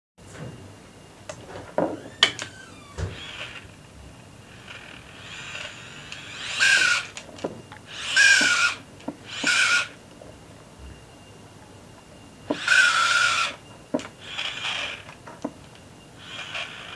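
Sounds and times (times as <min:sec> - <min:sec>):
electric motor whirring: 0:02.0 - 0:10.0, 0:12.5 - 0:16.9
sharp clicks and knocks: 0:06.7 - 0:09.6, 0:15.0 - 0:15.8.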